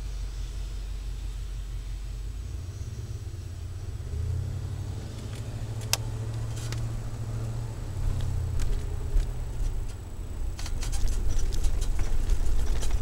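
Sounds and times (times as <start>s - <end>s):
engine exhaust drone: 0.0s - 13.0s
sharp clicks or rattles: 8.2s - 13.0s.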